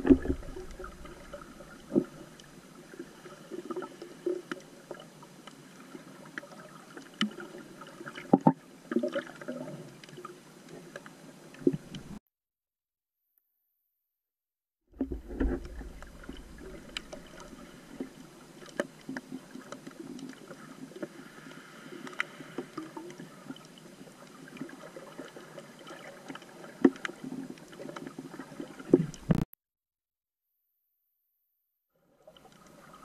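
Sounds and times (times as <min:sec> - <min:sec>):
underwater clicks and knocks: 0:00.0 - 0:02.5, 0:08.3 - 0:08.6, 0:15.0 - 0:19.3, 0:28.9 - 0:29.5.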